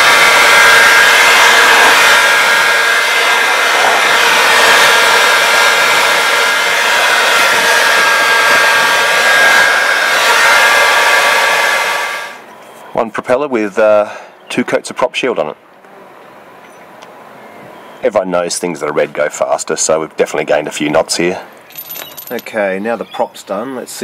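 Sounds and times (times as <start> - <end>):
heat gun fan whining: 0.0 - 13.5, 19.4 - 23.0.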